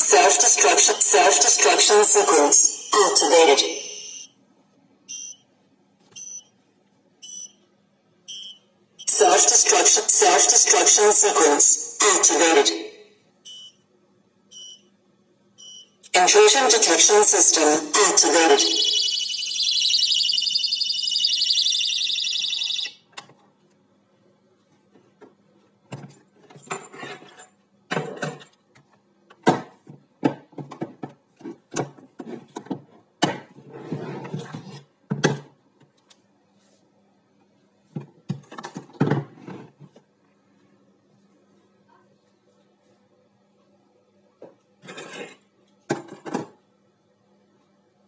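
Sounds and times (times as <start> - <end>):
shrill electronic alarm: 0.0 - 4.4, 8.3 - 12.3, 16.3 - 23.1.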